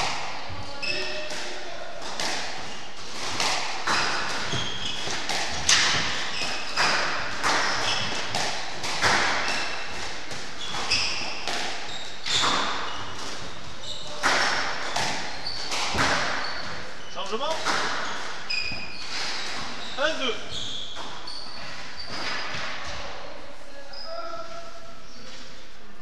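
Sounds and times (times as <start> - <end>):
squash ball hits: 0.0 - 19.8
shoes squeaking on wooden floor: 0.6 - 1.3, 2.6 - 23.0.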